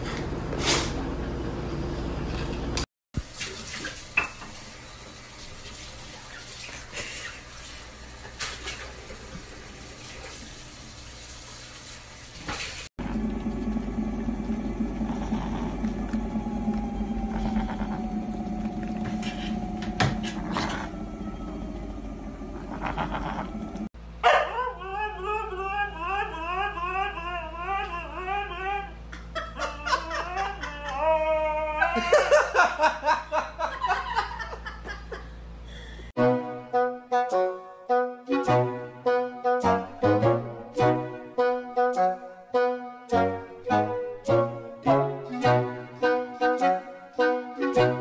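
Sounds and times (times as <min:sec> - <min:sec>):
steady low hum: 0:13.0 - 0:24.2
dog howling: 0:15.6 - 0:32.1.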